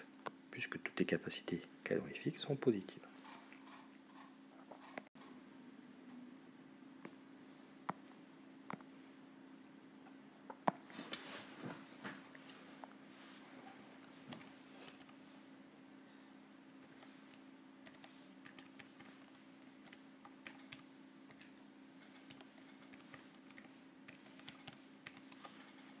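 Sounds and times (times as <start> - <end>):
low steady hum: 0.0 - 26.0
keyboard typing: 16.8 - 26.0.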